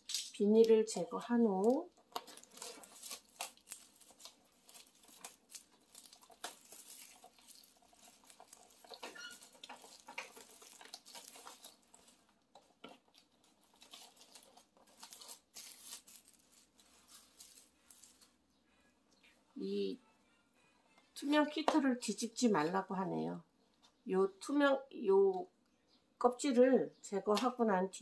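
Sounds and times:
plastic film crinkling: 0.0 - 18.5.

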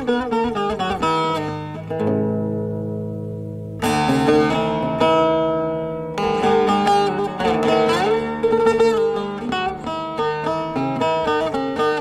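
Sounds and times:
plucked string chords: 0.0 - 12.0.

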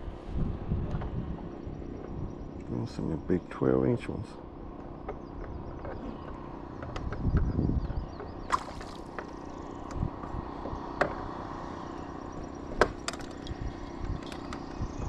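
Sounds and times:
sharp clicks and knocks: 4.8 - 10.0, 12.7 - 14.8.

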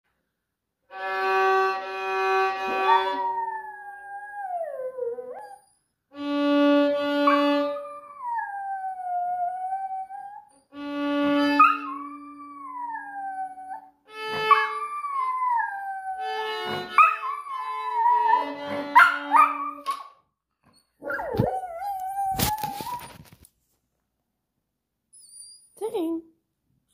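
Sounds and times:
violin long notes: 0.9 - 4.4, 6.1 - 9.8, 10.7 - 13.4, 14.1 - 19.4
dog howling: 2.7 - 5.7, 7.2 - 10.5, 11.6 - 19.9, 21.0 - 23.2.

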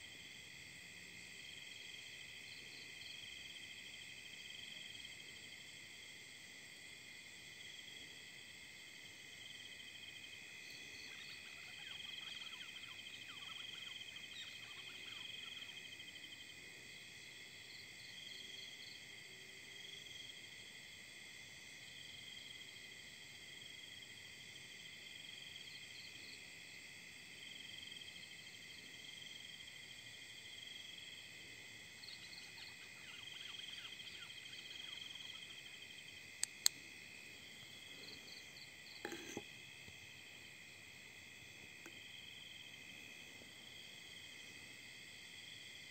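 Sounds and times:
crickets and insects trilling: 0.0 - 45.9
sharp clicks: 36.4 - 36.8.

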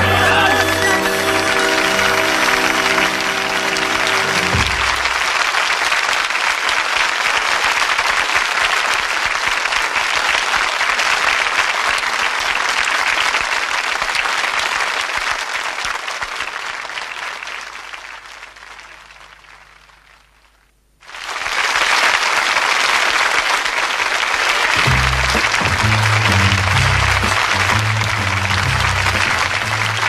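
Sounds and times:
short music sting: 0.0 - 5.2, 24.8 - 30.0
studio audience applauding: 0.0 - 30.0.

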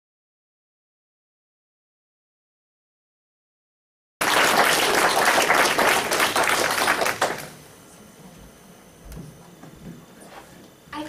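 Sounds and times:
audience applauding: 4.2 - 7.6.

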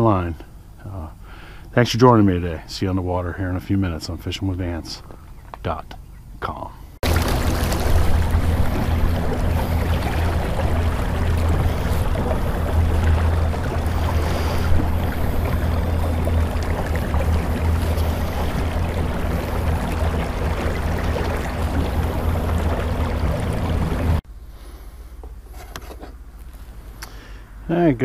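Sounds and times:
electric trolling motor humming: 7.0 - 24.2
rushing water and wind: 7.0 - 24.2.

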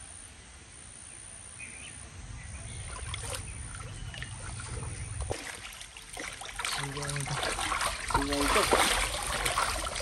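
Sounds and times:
stream water splashing: 2.6 - 10.0.

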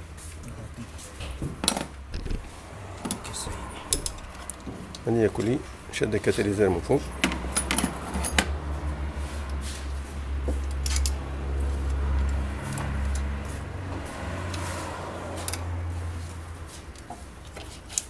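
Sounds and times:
low rumble: 2.1 - 2.6
screwdriver clicks and scrapes on metal: 10.6 - 11.2, 16.9 - 18.0.

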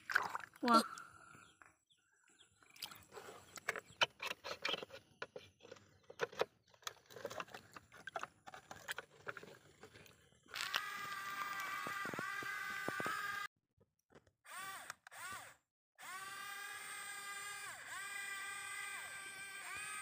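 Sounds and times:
splashes in muddy water: 0.0 - 0.8.

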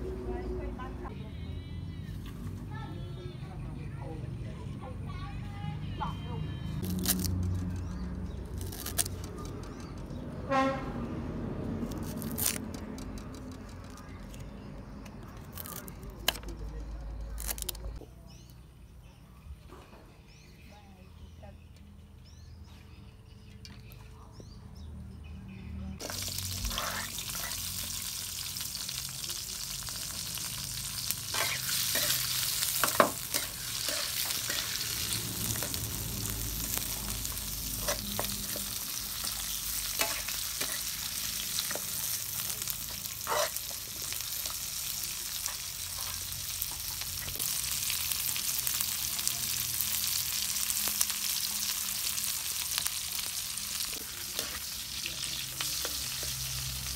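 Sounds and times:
metal spatula scraping a wok: 26.0 - 27.8, 30.9 - 35.9, 36.7 - 42.2, 42.8 - 44.6, 54.0 - 56.4
food sizzling in hot oil: 26.0 - 56.9.

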